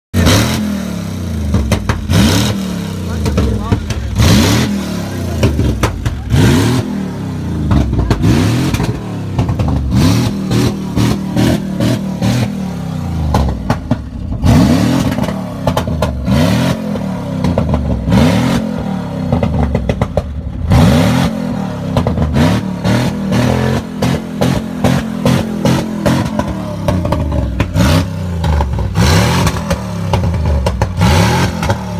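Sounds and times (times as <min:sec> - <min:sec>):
pickup truck engine revving: 0:00.2 - 0:31.9.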